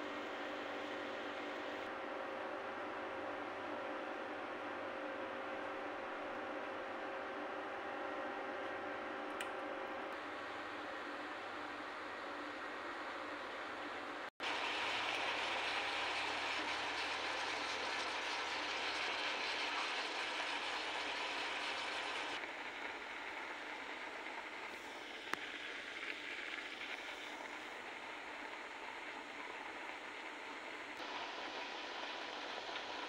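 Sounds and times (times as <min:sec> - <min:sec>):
vegetables sizzling in a pot: 0:14.4 - 0:33.0.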